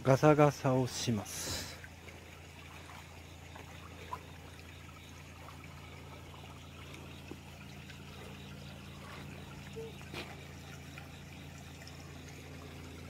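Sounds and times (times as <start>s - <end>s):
low steady hum: 0.0s - 13.0s
water trickling in a stream: 0.0s - 13.0s.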